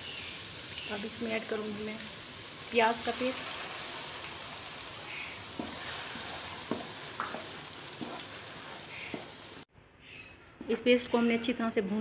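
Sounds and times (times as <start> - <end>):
onion paste sizzling in oil: 0.0 - 9.7
spatula scraping pan: 5.6 - 9.4.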